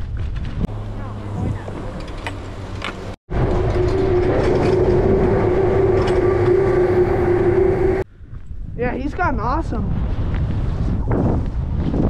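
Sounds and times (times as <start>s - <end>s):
chairlift machinery hum and rattle: 0.0s - 8.0s.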